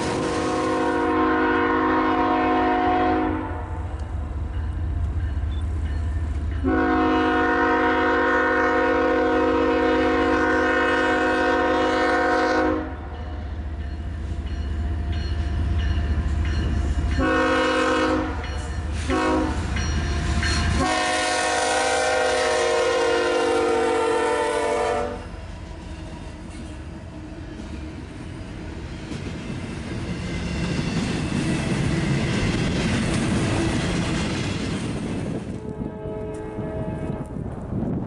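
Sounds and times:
train air horn blasts: 0.0s - 3.9s, 6.6s - 13.1s, 17.1s - 19.8s, 20.6s - 25.4s, 35.5s - 37.4s.

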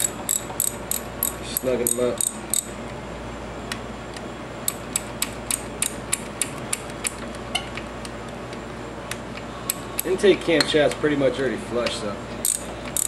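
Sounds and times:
ratchet wrench clicking: 0.0s - 2.7s, 4.7s - 7.2s, 12.4s - 13.0s.

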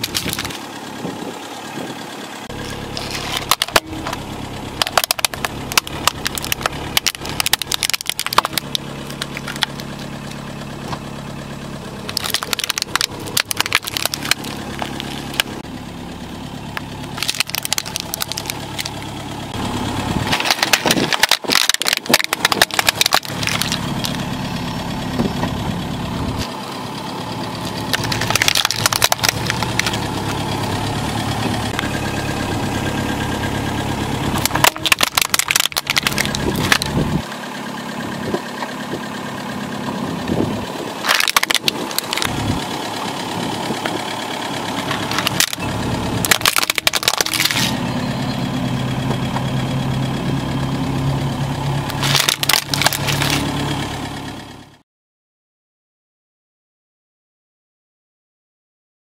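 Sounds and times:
plastic cracking and snapping: 0.0s - 0.6s, 3.0s - 4.2s, 4.8s - 10.0s, 12.1s - 15.6s, 16.8s - 19.0s, 20.3s - 24.2s, 27.9s - 30.0s, 34.4s - 36.9s, 41.0s - 42.3s, 44.9s - 45.6s, 46.2s - 47.8s, 51.9s - 53.5s
car engine idling: 0.0s - 54.8s.

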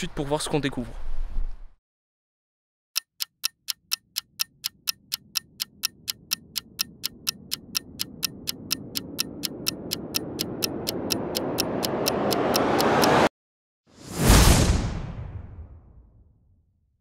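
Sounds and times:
clock ticking: 3.0s - 13.3s
swell of noise: 5.5s - 13.3s.

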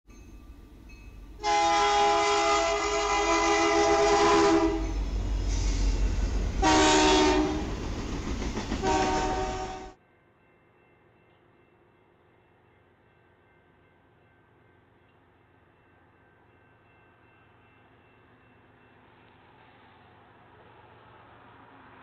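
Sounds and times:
train rumble: 0.2s - 10.0s
locomotive air horn: 1.4s - 6.0s, 6.6s - 7.8s, 8.8s - 10.0s.

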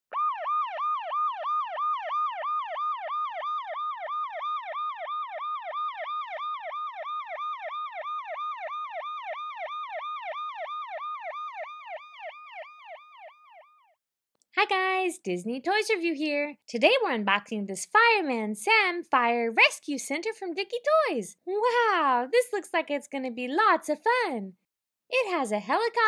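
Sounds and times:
electronic siren yelp: 0.1s - 14.0s.

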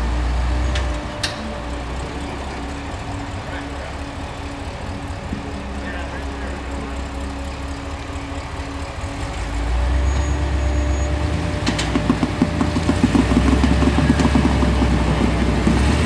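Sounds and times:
engine working under load: 0.0s - 16.0s
rapid clatter: 11.4s - 16.0s.

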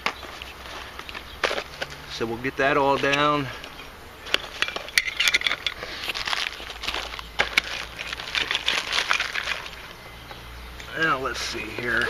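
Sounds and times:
plastic bag crinkling: 4.2s - 9.9s.

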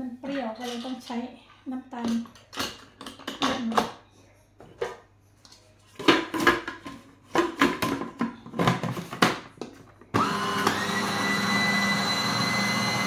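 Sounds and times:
food processor motor whining: 10.1s - 13.0s.

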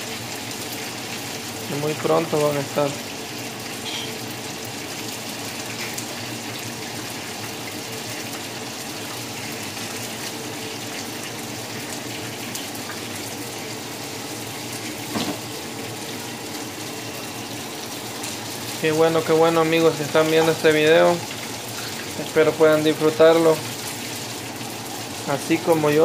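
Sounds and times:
fish sizzling in hot oil: 0.0s - 26.0s.

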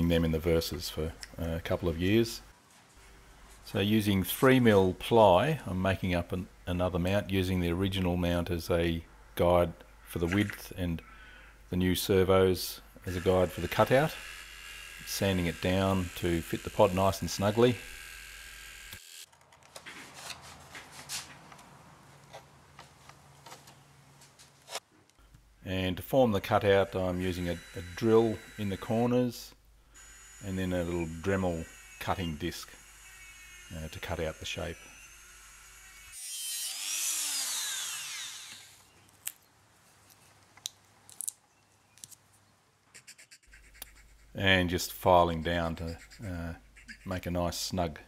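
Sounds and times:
rotary tool grinding plywood: 13.1s - 19.3s, 26.7s - 29.1s, 30.0s - 38.8s.

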